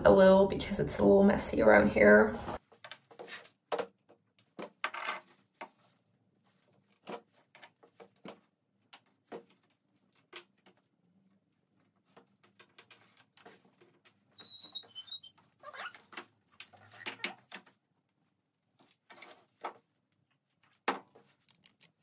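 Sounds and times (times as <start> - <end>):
short high chirp: 14.4 - 15.3.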